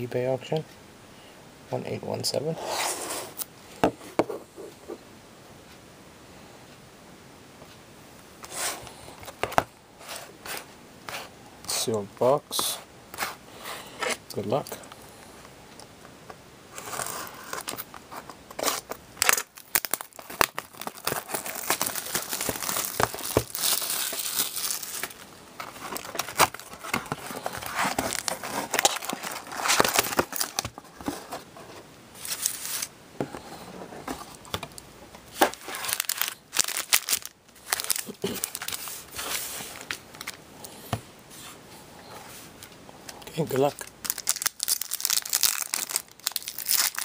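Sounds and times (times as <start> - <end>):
foil packs rustling: 16.8 - 31.6, 32.2 - 32.9, 35.3 - 40.4, 43.4 - 47.0
shrink wrap tearing and crinkling: 18.5 - 30.7, 32.2 - 32.9, 35.3 - 40.4, 43.4 - 47.0
cardboard box opening: 18.6 - 31.5.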